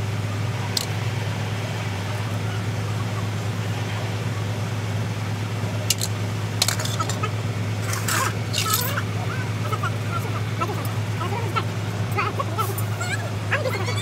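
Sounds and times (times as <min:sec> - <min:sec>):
low engine hum: 0:00.0 - 0:14.0.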